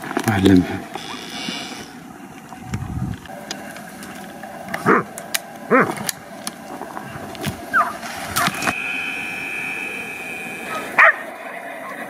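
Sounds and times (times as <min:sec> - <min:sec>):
dog barking: 0:10.8 - 0:11.2.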